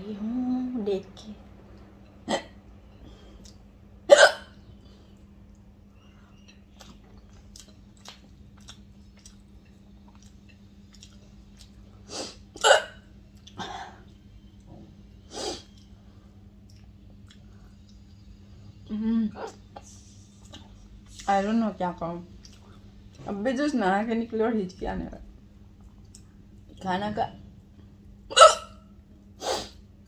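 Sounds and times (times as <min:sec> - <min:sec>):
woman hiccuping: 0:02.3 - 0:02.6, 0:04.1 - 0:04.5, 0:12.6 - 0:14.0, 0:28.3 - 0:28.8.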